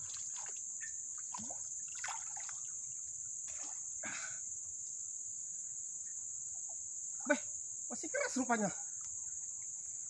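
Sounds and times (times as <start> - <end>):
small water splashes: 0.0 - 4.0
water trickling: 0.0 - 4.0
insects droning: 0.0 - 10.0.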